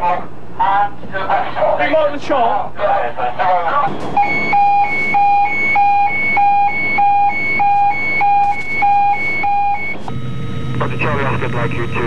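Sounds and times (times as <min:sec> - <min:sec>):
two-tone alarm: 0:04.2 - 0:10.6.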